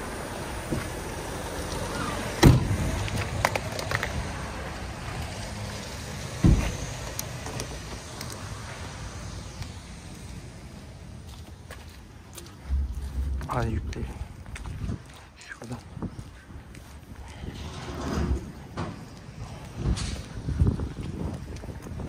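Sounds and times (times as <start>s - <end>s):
low steady rumble: 12.2s - 15.2s
heavy thumps: 12.6s - 15.0s.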